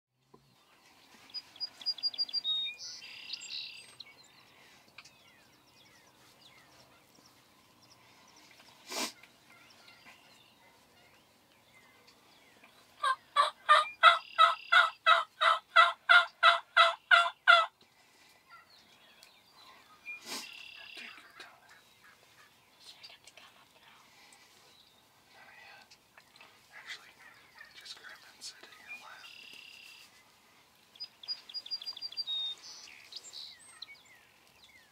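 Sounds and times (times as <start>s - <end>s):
wild turkeys yelping: 13.0s - 17.7s, 26.2s - 30.1s.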